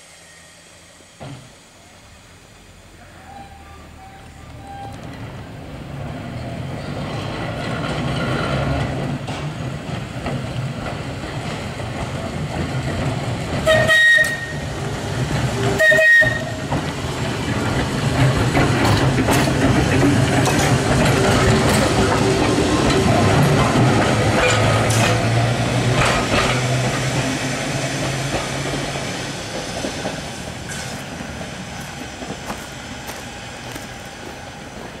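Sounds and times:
tram warning blasts: 0.0s - 7.6s, 8.5s - 35.0s
tram wheels and motors rumbling: 0.0s - 35.0s.

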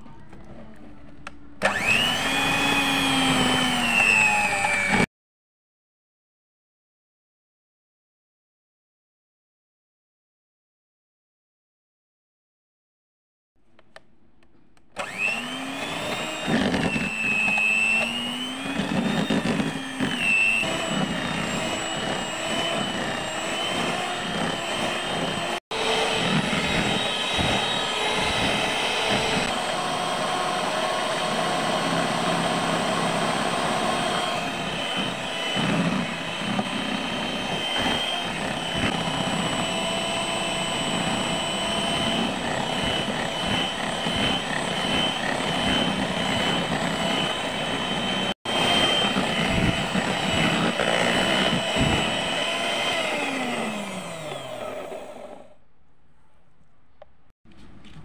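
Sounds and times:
electric hand mixer whirring: 1.6s - 5.1s, 15.0s - 55.6s.

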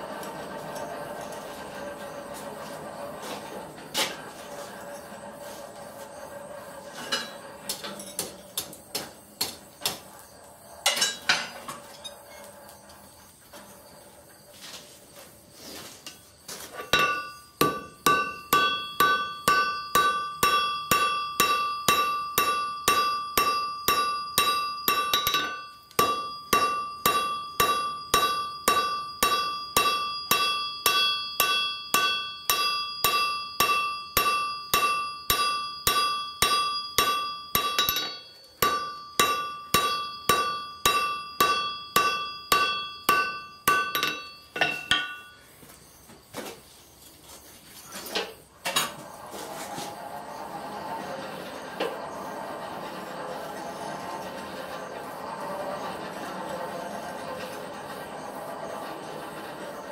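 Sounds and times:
anvil ringing: 16.8s - 45.4s
hammer striking on anvil: 16.8s - 45.4s.

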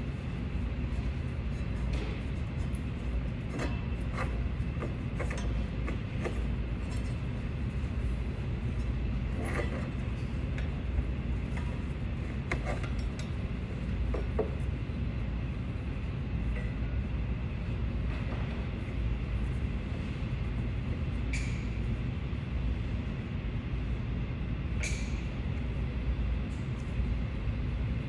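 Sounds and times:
steady low rumble: 0.0s - 28.0s.

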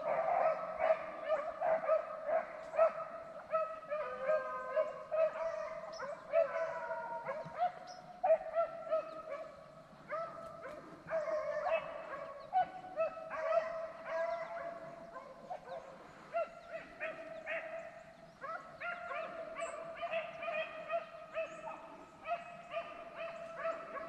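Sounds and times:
pack of hounds baying: 0.0s - 9.5s, 10.1s - 24.0s.

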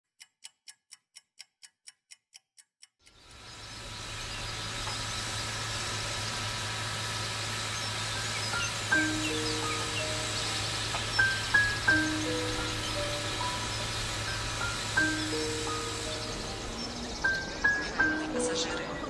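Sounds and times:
soft even ticks: 0.1s - 3.6s
model train running hiss and hum: 3.1s - 19.0s.

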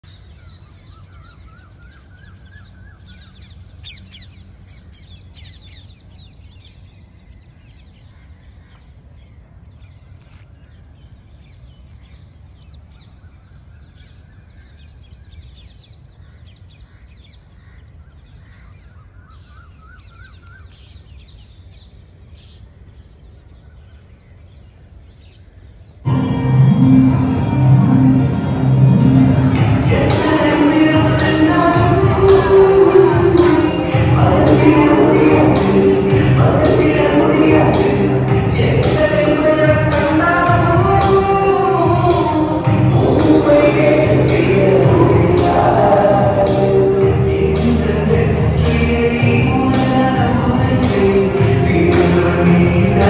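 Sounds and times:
loud music: 26.1s - 53.0s
steady low rumble: 26.1s - 53.0s.

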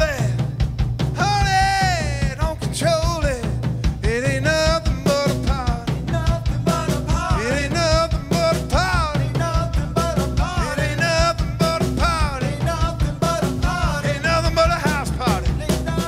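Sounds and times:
rock band playing live: 0.0s - 16.0s.

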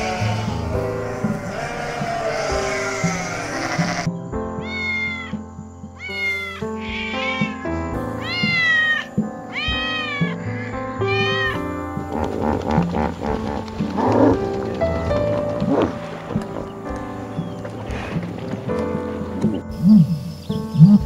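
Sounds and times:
background music: 0.0s - 21.0s
cat meowing: 1.1s - 5.4s, 6.0s - 11.6s.

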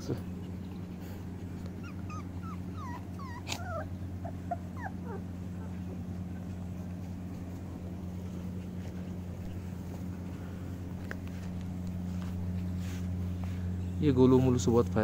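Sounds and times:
steady low hum: 0.0s - 15.0s
puppies whimpering and yipping: 0.1s - 10.9s.

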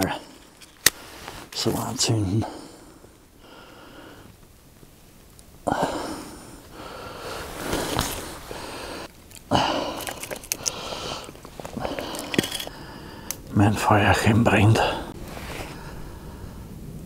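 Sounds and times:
fire crackling: 0.0s - 17.0s
kindling hissing: 5.7s - 13.4s.

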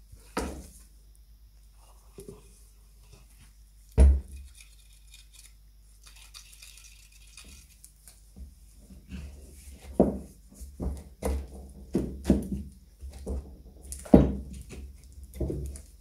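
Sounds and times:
thump on workbench: 4.0s - 4.3s.

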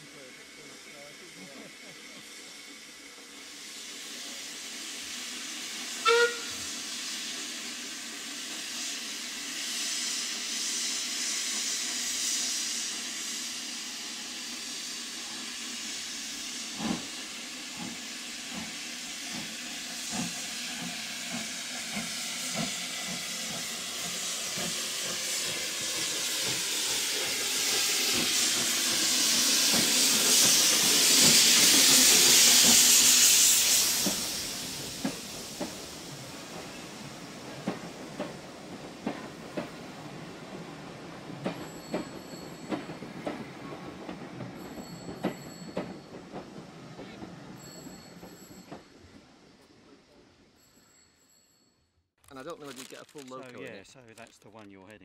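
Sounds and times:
steam hiss: 0.0s - 49.0s
steam locomotive whistle: 5.9s - 7.3s.

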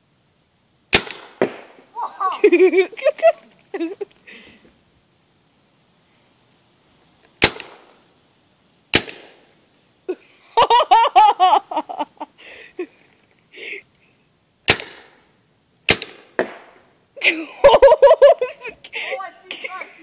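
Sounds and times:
paintball gun shots: 0.9s - 1.8s, 7.4s - 8.0s, 8.9s - 9.4s, 14.7s - 15.3s, 15.9s - 16.8s
person laughing loudly: 2.0s - 4.1s, 10.1s - 13.1s, 17.2s - 20.0s.

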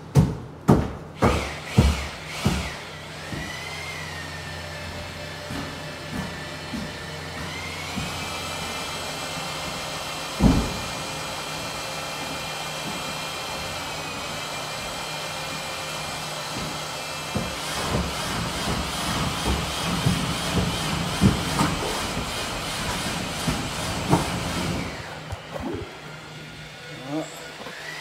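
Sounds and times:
loud thump: 10.4s - 10.9s.

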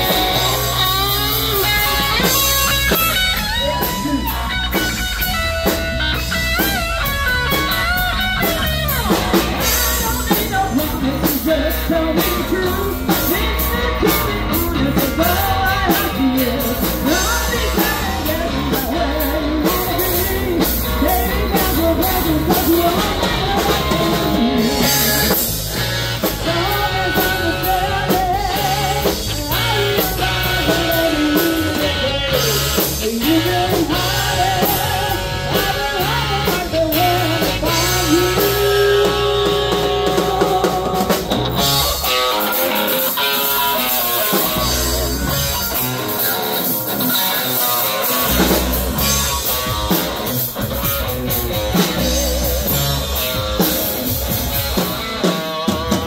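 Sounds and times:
drums and bass: 0.0s - 56.0s
electric guitar lead: 0.0s - 56.0s
woman singing: 9.8s - 25.5s, 26.3s - 41.4s.

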